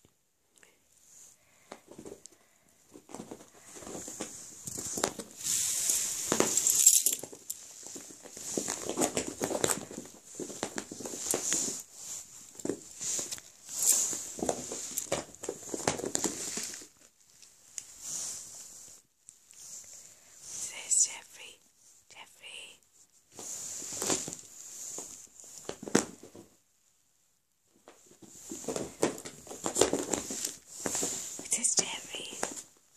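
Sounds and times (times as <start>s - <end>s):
cat paws scampering on carpet: 1.6s - 19.0s, 27.7s - 32.8s.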